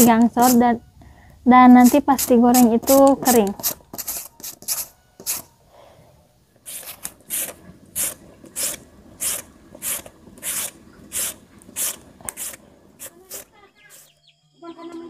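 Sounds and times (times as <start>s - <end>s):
potato rasping on a hand grater: 0.0s - 0.6s, 1.7s - 5.4s, 6.7s - 14.1s.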